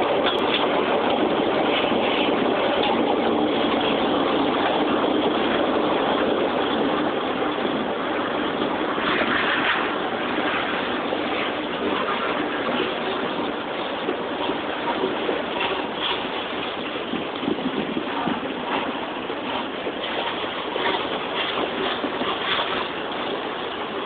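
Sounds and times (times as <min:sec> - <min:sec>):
diesel locomotives rumbling: 0:00.0 - 0:24.0
freight cars rolling on rails: 0:00.0 - 0:24.0.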